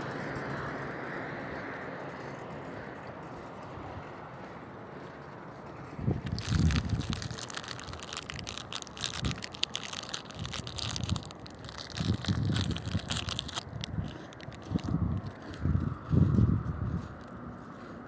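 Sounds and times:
phone microphone handling crackle: 6.2 - 15.5.

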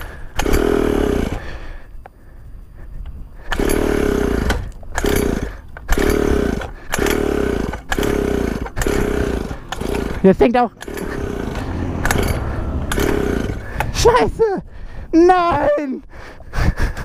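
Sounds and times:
small engine being pull-started: 0.0 - 1.6, 3.4 - 14.0.

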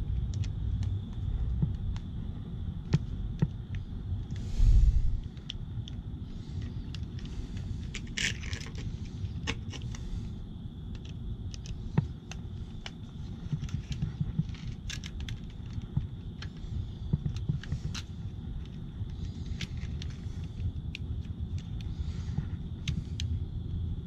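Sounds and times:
steady low rumble: 0.0 - 24.0
light clicks and scrapes of wiring: 5.2 - 23.4.

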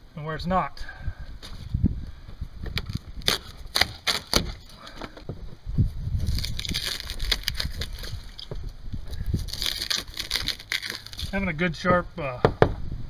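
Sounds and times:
styrofoam snapping: 2.8 - 4.6, 6.2 - 8.4, 9.4 - 11.4
styrofoam crackling and crunching: 2.8 - 4.8, 6.1 - 8.5, 9.1 - 11.5.

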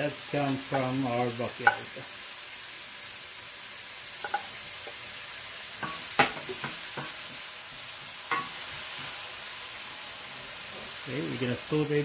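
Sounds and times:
vegetables sizzling in a pan: 0.0 - 12.0
wooden spoon knocking pan: 1.6 - 2.0, 4.2 - 4.5, 5.8 - 7.4.

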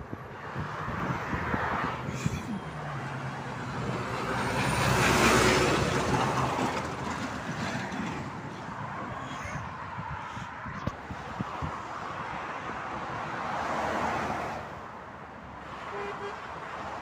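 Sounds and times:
truck diesel engine hum: 0.0 - 11.8.

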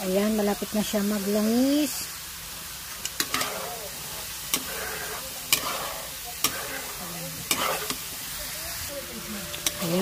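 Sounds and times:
coconut milk sizzling and bubbling: 0.0 - 10.0
spatula striking pan: 3.0 - 3.8, 4.5 - 8.0.

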